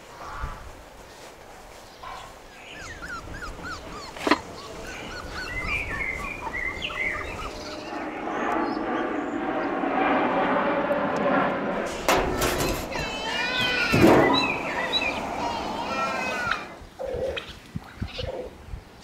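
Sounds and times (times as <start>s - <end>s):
dog whining: 2.7s - 7.8s
sharp metal clank: 11.9s - 13.1s.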